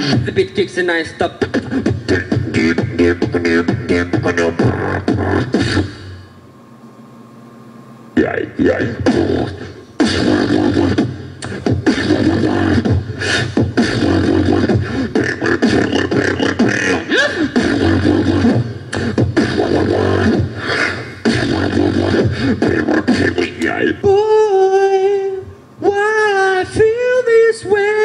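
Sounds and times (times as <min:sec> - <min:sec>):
beatboxing drum hits and wobbling bass: 0:00.0 - 0:06.1, 0:08.2 - 0:23.8.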